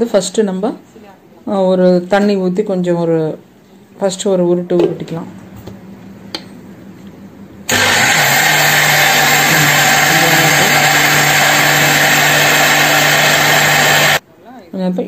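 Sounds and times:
mixer grinder motor running: 7.7s - 14.2s.

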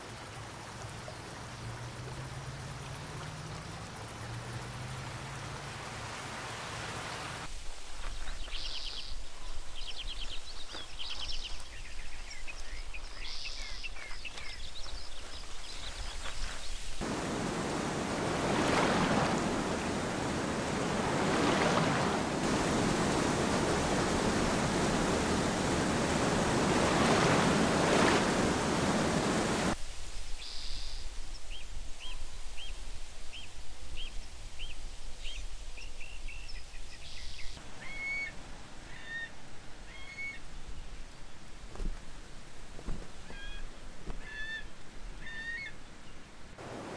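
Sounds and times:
small birds chirping: 8.0s - 17.0s
river rapids rushing: 17.0s - 29.8s, 46.6s - 46.9s.

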